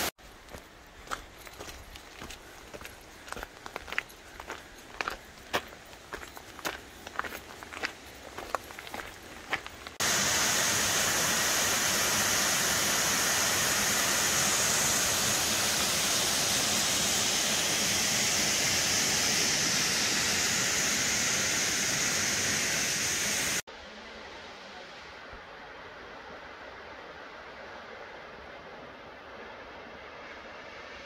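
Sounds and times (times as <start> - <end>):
footsteps on gravel: 0.2 - 10.0
waterfall rushing into pool: 10.0 - 23.6.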